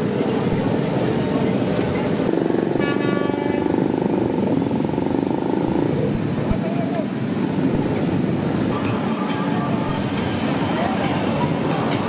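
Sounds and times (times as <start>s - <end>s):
motorcycles riding past: 0.0s - 12.0s
vehicle horn toot: 2.8s - 3.7s.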